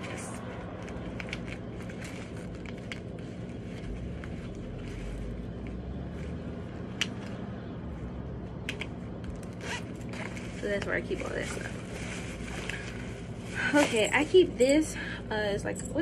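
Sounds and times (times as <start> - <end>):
light rustling of fabric bag: 0.0 - 6.9, 9.0 - 15.0
steady low hum: 0.0 - 16.0
small clicks of makeup items: 8.6 - 9.5.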